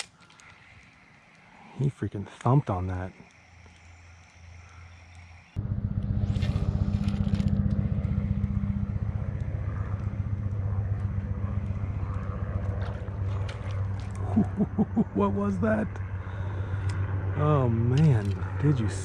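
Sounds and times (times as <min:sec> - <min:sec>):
vehicle engine running: 0:05.5 - 0:19.0.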